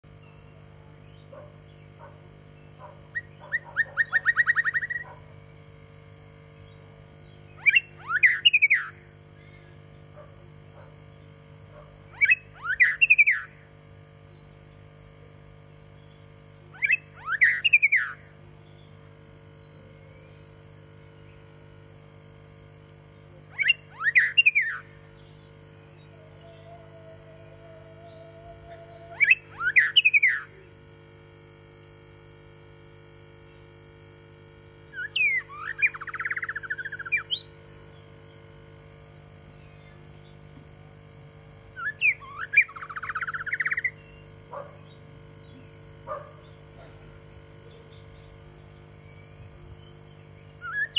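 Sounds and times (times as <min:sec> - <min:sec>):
bird singing whistled phrases: 0:03.1 - 0:05.0, 0:07.2 - 0:09.7, 0:12.1 - 0:13.6, 0:16.8 - 0:18.9, 0:23.5 - 0:26.9, 0:28.0 - 0:30.5, 0:34.9 - 0:37.5, 0:41.8 - 0:44.2, 0:49.0 - 0:50.9.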